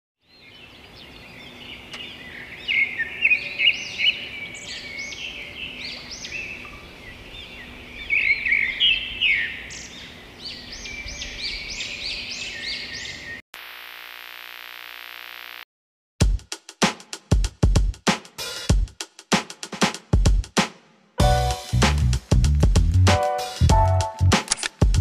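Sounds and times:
small birds chirping: 0.2s - 13.4s.

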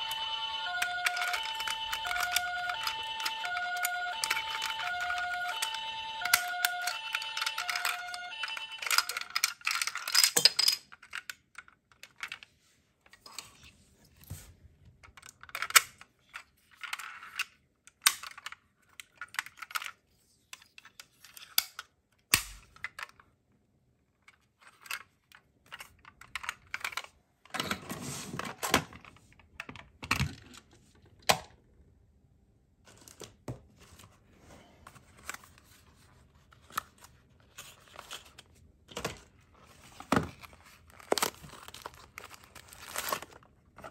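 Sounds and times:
small metal and plastic parts clicking: 0.7s - 12.5s, 15.0s - 23.3s, 24.2s - 27.6s.

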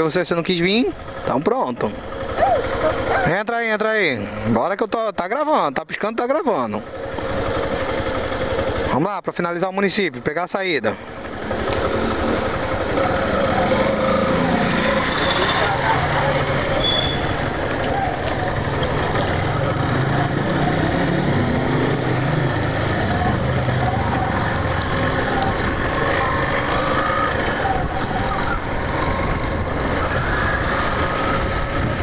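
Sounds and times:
motorcycle engine running: 0.2s - 3.4s, 6.8s - 9.1s, 11.0s - 32.0s
wind noise on microphone: 27.6s - 32.0s.

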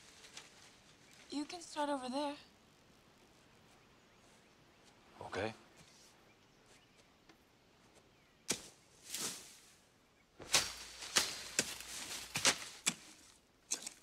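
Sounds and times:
rustling foliage: 0.0s - 14.0s
digging tool chopping into soil: 8.5s - 9.4s, 10.4s - 14.0s
plants torn out by roots: 10.4s - 14.0s.

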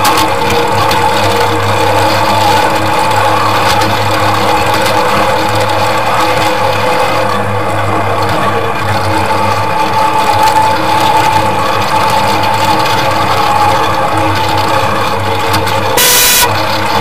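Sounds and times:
steady whine: 0.0s - 17.0s
low hum: 15.9s - 16.6s.

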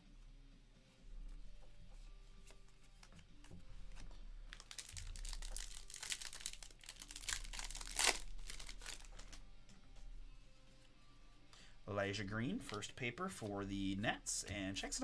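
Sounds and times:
foil wrapper crinkling: 4.5s - 9.4s
wrapper tearing rip: 4.5s - 9.4s.

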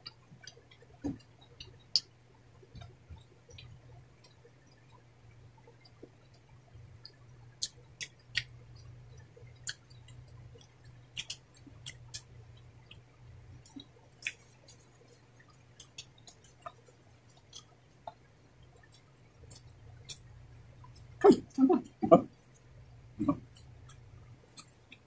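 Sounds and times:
low steady hum: 0.0s - 25.0s
people chewing: 5.7s - 25.0s
wet mouth clicks: 7.6s - 8.6s, 10.6s - 12.3s.

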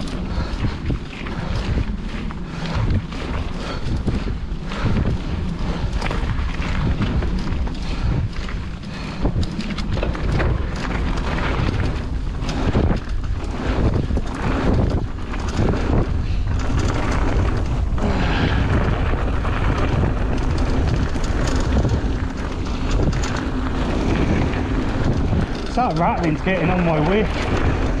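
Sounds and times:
bike clattering rattle: 0.0s - 28.0s
tyres rolling over gravel: 0.0s - 28.0s
wind buffeting microphone: 0.0s - 28.0s
person talking: 25.7s - 27.4s.

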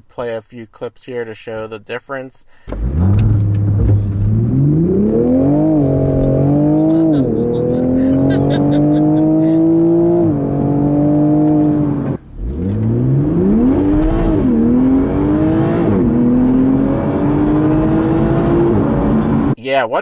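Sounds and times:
car engine accelerating: 2.7s - 19.6s.

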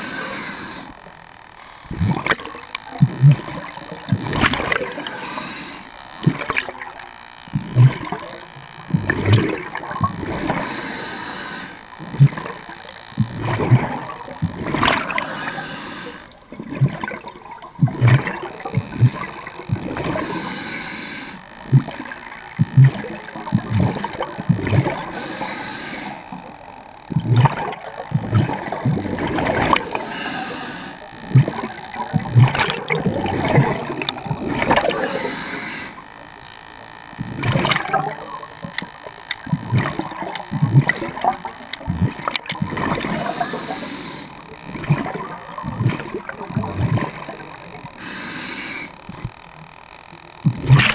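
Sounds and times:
regulator hissing inhale: 0.0s - 1.8s, 4.7s - 6.0s, 10.4s - 11.9s, 14.8s - 16.4s, 20.0s - 21.5s, 25.0s - 26.7s, 29.7s - 31.2s, 34.8s - 36.2s, 43.0s - 44.6s, 48.0s - 49.4s
gurgling bubbles exhale: 1.8s - 7.0s, 7.6s - 36.0s, 37.2s - 38.7s, 39.4s - 49.4s, 50.5s - 50.9s.

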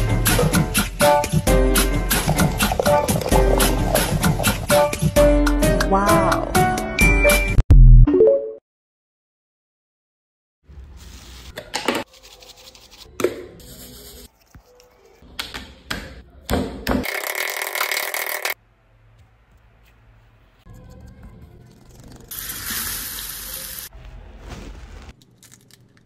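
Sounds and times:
rustling handling noise: 24.0s - 26.0s.

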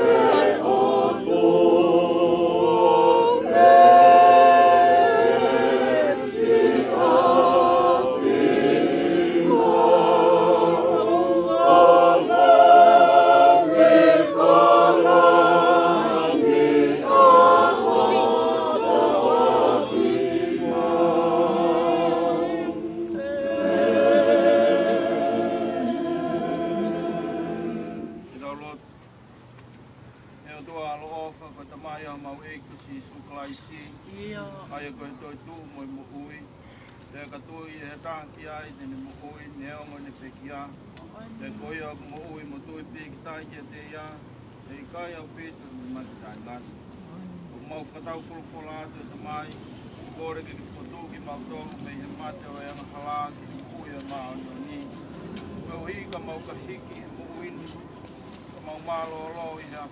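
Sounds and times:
group singing a hymn a cappella: 0.0s - 28.6s, 47.6s - 59.9s.

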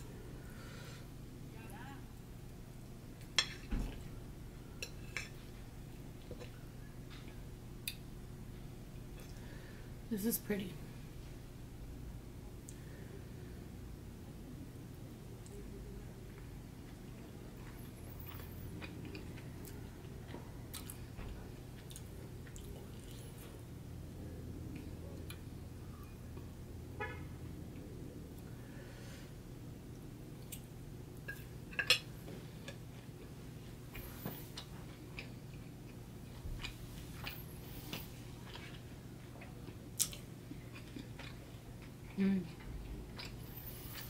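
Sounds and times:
steady low hum: 0.0s - 44.0s
chewing with wet mouth sounds: 16.3s - 23.7s, 29.9s - 44.0s.

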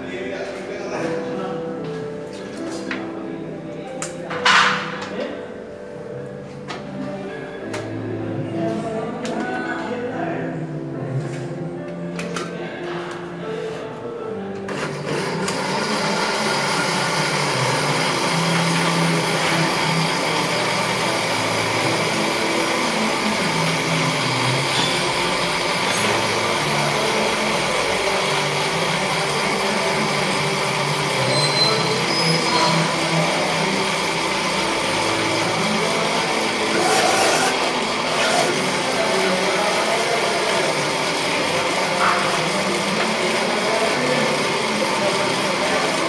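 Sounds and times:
countertop blender running: 14.6s - 46.0s.

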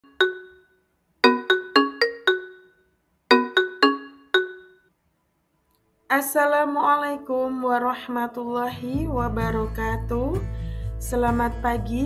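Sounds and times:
musical jingle of pitched notes: 1.2s - 2.7s.

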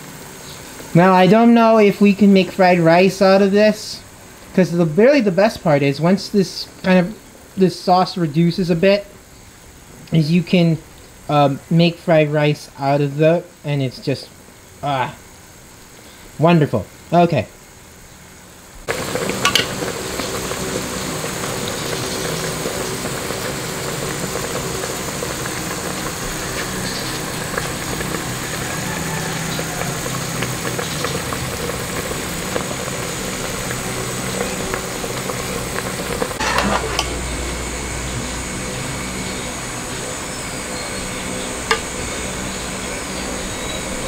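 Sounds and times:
background hum: 0.0s - 44.0s
stew simmering in a pot: 18.8s - 44.0s
metal ladle clinking on pot: 19.4s - 19.7s, 36.4s - 37.2s, 41.7s - 41.9s.

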